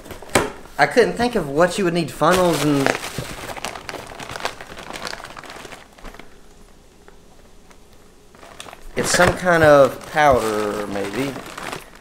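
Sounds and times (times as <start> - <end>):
packaging rustling and crinkling: 2.2 - 6.5, 7.7 - 12.0.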